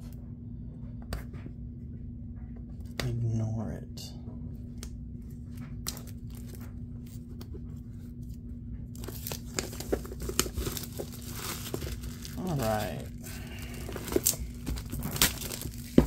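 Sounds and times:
wrappers crinkling: 0:09.0 - 0:16.0.

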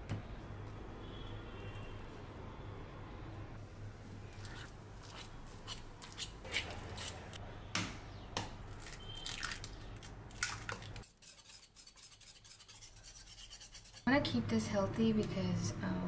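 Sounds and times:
eggs cracking: 0:08.4 - 0:11.1.

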